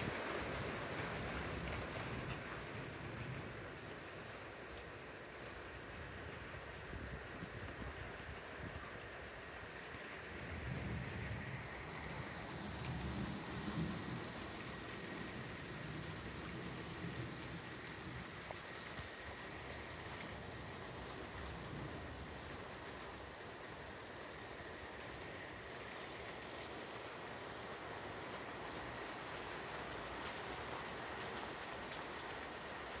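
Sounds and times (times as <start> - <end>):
faint background hiss: 0.0 - 33.0
insects trilling: 0.0 - 33.0.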